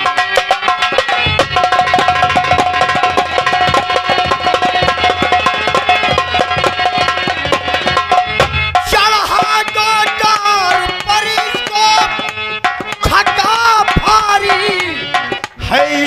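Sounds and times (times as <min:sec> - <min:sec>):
hand drums playing fast: 0:00.0 - 0:16.0.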